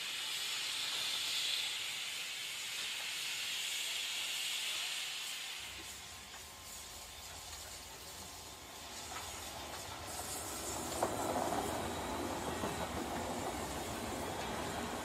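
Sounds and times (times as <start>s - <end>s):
steam hissing: 0.0s - 15.0s
locomotive rolling rumble: 7.2s - 15.0s.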